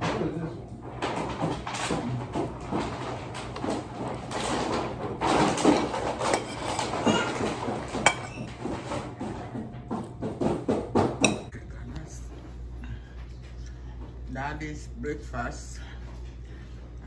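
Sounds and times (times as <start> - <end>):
household clatter: 0.0 - 11.4
cutlery scraping on ceramic plate: 5.6 - 9.0.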